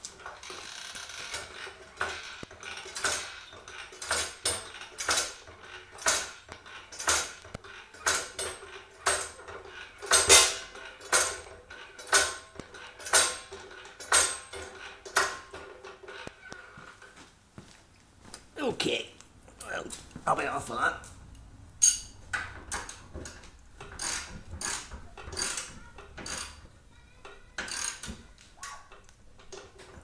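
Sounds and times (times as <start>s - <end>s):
hydraulic jack pumping metallic clinks: 0.2s - 16.2s, 21.8s - 26.6s.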